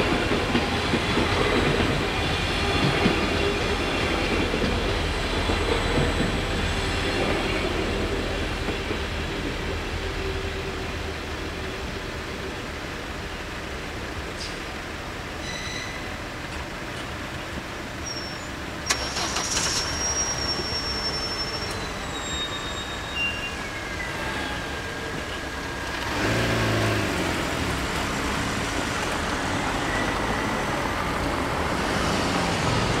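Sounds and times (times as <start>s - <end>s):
cars driving past: 26.0s - 33.0s.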